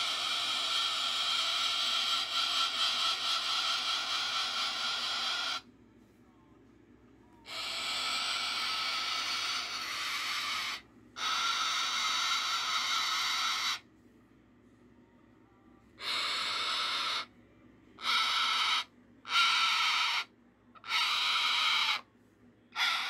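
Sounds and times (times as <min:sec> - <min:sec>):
cockatoo making hissing static: 0:00.0 - 0:05.6, 0:07.5 - 0:13.8, 0:16.0 - 0:17.3, 0:18.0 - 0:22.1, 0:22.7 - 0:23.0.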